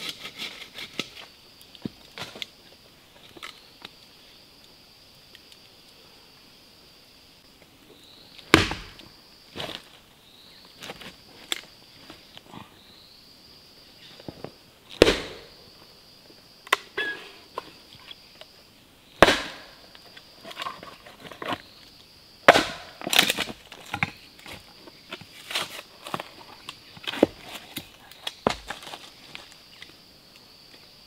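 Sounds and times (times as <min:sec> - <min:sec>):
hatchet chopping log: 0:08.5 - 0:09.0, 0:15.0 - 0:15.5, 0:19.2 - 0:19.8, 0:22.5 - 0:23.4
wood cracking: 0:19.2 - 0:21.6, 0:22.5 - 0:24.7.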